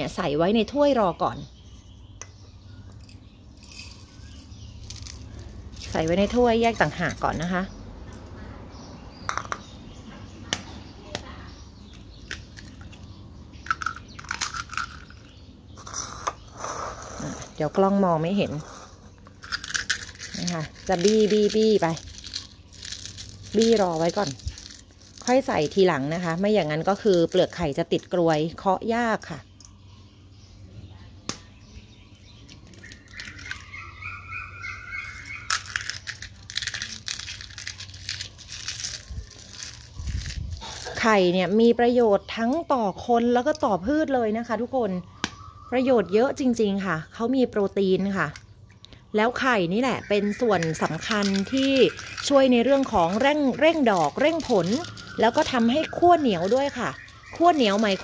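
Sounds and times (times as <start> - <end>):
bird chirping: 0.0 - 58.0
eggshells cracking: 3.0 - 7.4, 11.8 - 16.6, 17.4 - 28.6, 32.4 - 41.1, 50.2 - 58.0.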